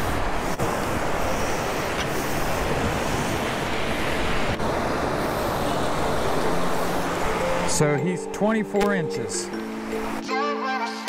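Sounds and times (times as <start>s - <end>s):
wind buffeting microphone: 0.0s - 7.6s
surf breaking on beach: 0.0s - 10.2s.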